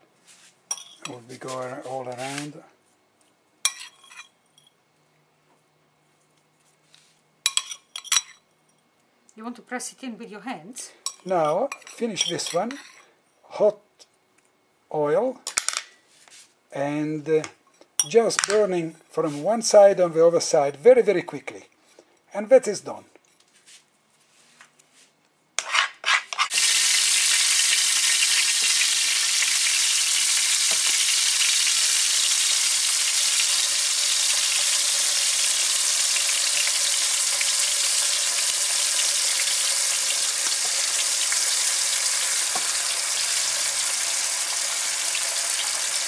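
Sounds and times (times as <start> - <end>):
meat sizzling in hot oil: 26.5 - 46.0.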